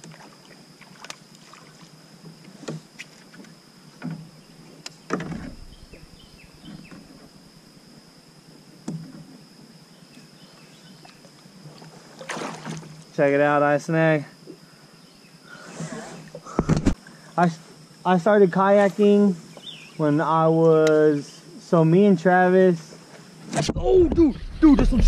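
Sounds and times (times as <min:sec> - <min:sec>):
loud thump: 0:05.2 - 0:06.9.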